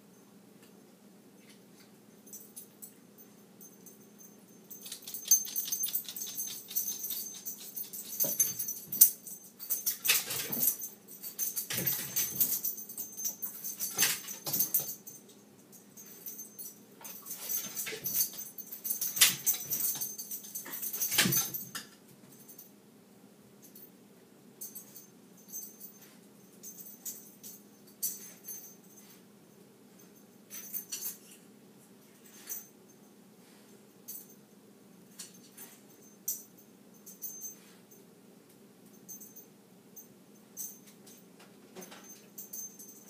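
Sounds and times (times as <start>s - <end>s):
dog claws clicking and scrabbling: 4.7s - 15.0s.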